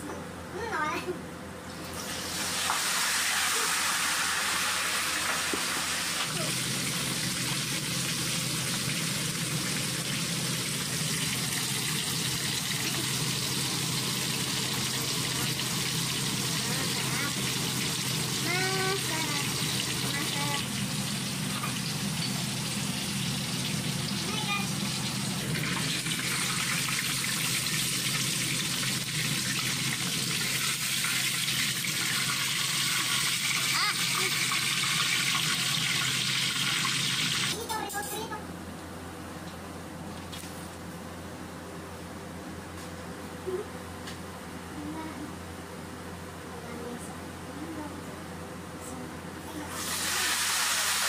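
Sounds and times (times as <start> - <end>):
oil sizzling deep-frying chicken: 1.7 - 37.7, 49.6 - 51.0.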